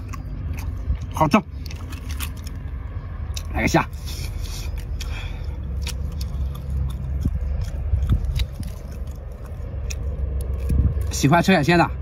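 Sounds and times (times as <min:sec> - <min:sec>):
steady low rumble: 0:00.0 - 0:12.0
shrimp shell crackling: 0:01.6 - 0:02.9.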